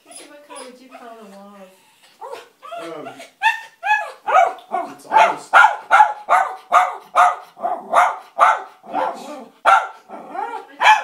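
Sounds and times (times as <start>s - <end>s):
dog barking: 3.9s - 11.0s.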